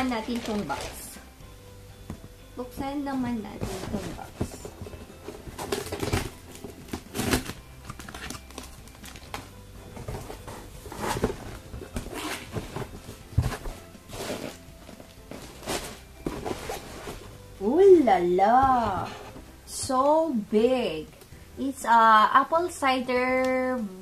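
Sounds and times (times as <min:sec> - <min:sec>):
scraping and rustling in a box: 0:03.5 - 0:17.4
scissors slitting packing tape: 0:06.9 - 0:09.4.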